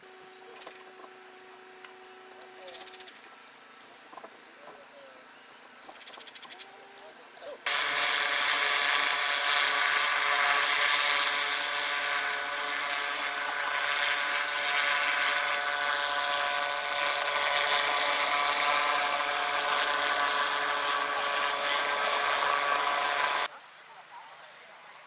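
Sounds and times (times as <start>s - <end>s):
model helicopter hovering: 7.7s - 23.5s.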